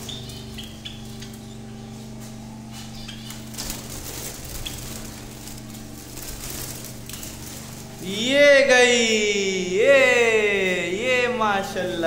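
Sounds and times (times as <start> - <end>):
small birds chirping: 0.0 - 8.2
low hum: 0.0 - 12.0.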